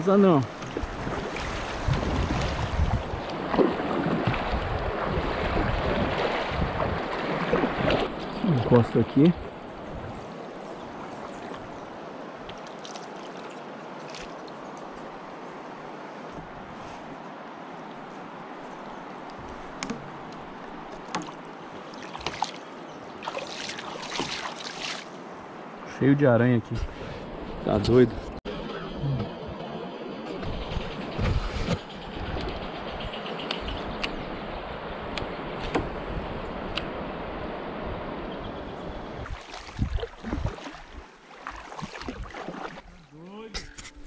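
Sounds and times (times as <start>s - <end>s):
water splashing: 0.0s - 15.3s, 19.2s - 25.6s, 39.2s - 43.8s
kayak hull knocking and scraping: 0.5s - 8.8s, 19.4s - 22.6s, 30.3s - 32.6s, 35.5s - 36.2s.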